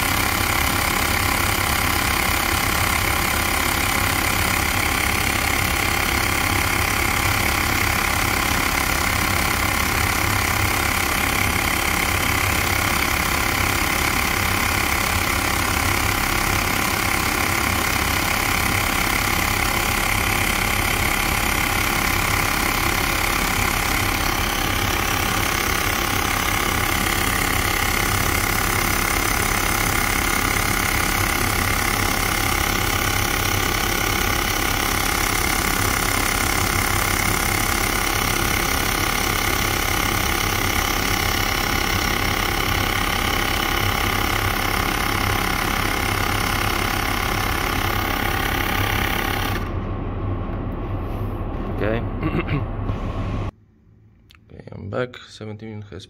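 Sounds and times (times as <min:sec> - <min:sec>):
small air compressor running: 0:00.0 - 0:50.4.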